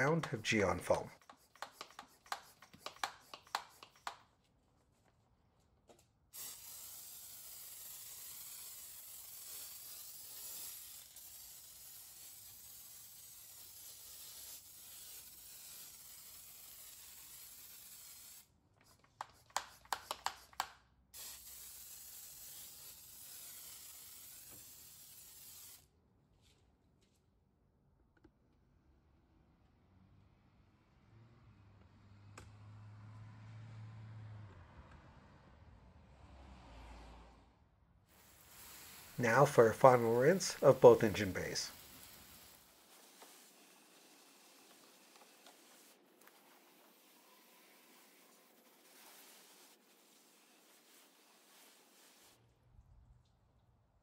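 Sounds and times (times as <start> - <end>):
foam sprayer hissing: 0.0 - 4.2, 6.4 - 18.4, 19.0 - 25.8, 38.2 - 52.4
sprayer short clicks: 1.2 - 4.2.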